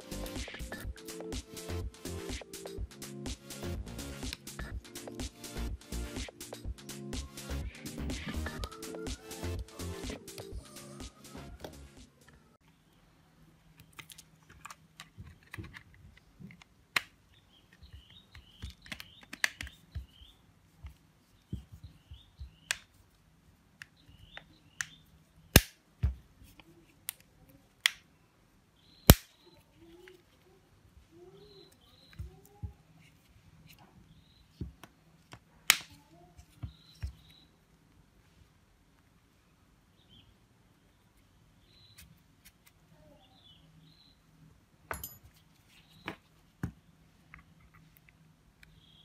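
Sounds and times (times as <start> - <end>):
smartphone parts clicking and tapping: 13.8 - 20.2
loud snaps: 29.1 - 29.3.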